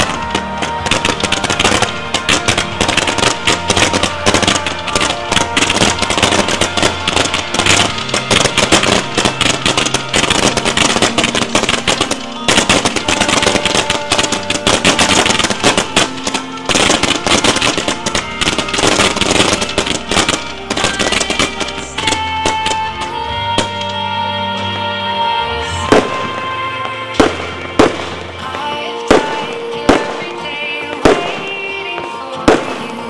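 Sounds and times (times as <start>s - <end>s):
fireworks cracks and bangs: 0.0s - 24.0s, 25.6s - 33.0s
music: 0.0s - 33.0s.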